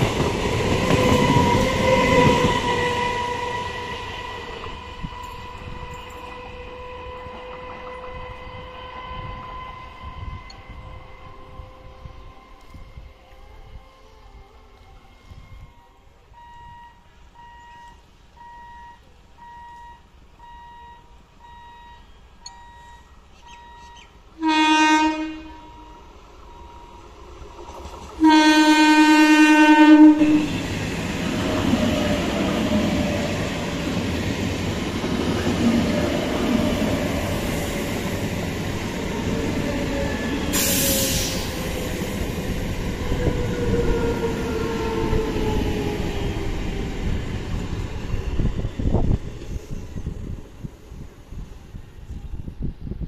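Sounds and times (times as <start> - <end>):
train wheels rumbling on rails: 0.0 - 13.8, 25.6 - 53.0
train horn blasts: 0.7 - 27.0, 28.2 - 30.6.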